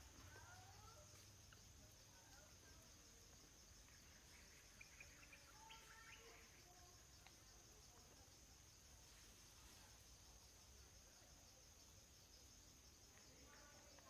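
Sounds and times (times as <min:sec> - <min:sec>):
faint bird chirps: 0:00.0 - 0:07.3
high insect drone: 0:00.0 - 0:14.0.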